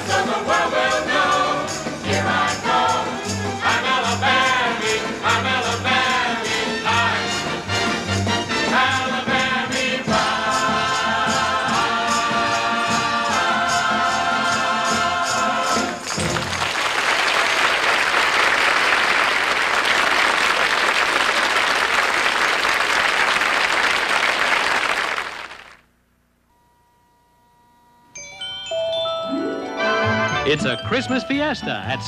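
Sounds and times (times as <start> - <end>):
chorus and band singing: 0.0 - 16.1
audience applause: 16.0 - 25.8.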